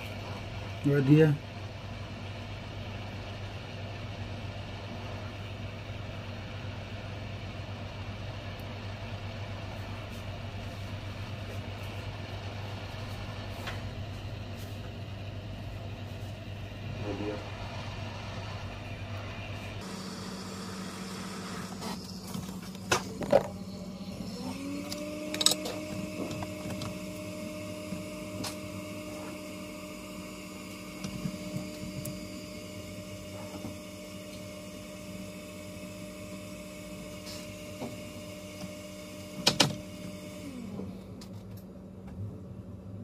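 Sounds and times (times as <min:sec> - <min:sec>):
steady electrical hum: 0:00.0 - 0:43.0
motor-like tone: 0:16.9 - 0:41.2.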